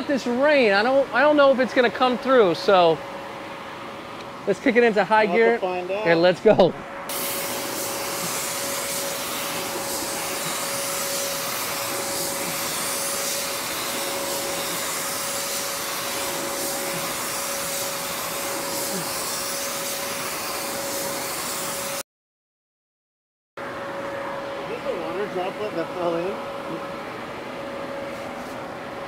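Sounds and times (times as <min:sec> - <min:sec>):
blower fan humming: 0:00.0 - 0:22.0, 0:23.6 - 0:29.0
spray gun air hiss: 0:07.1 - 0:22.0.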